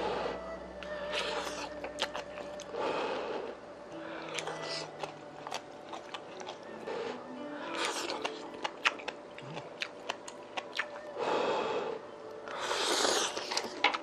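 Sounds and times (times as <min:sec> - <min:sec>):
person blowing on food: 0:00.0 - 0:14.0
wet chewing and mouth clicks: 0:00.8 - 0:02.8, 0:04.1 - 0:07.1, 0:07.7 - 0:11.2, 0:12.3 - 0:14.0.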